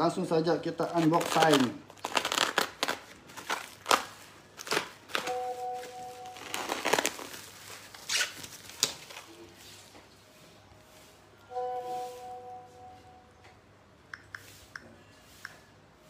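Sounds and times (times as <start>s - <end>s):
plastic wrapping crinkling: 0.4s - 9.9s.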